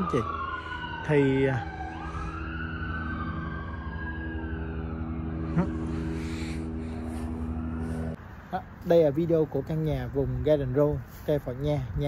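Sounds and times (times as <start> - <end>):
siren wailing: 0.0 - 8.2
engine humming: 1.9 - 10.3.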